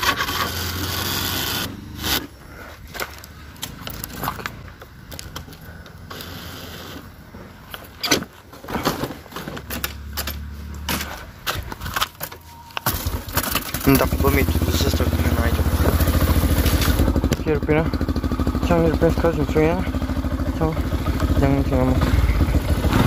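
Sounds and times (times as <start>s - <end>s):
motorcycle starter cranking: 0.0s - 2.4s, 9.5s - 23.0s.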